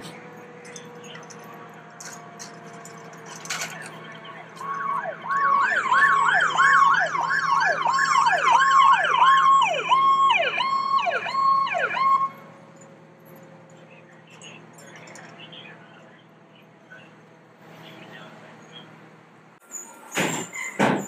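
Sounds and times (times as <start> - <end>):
electronic siren wailing: 4.0 - 12.4.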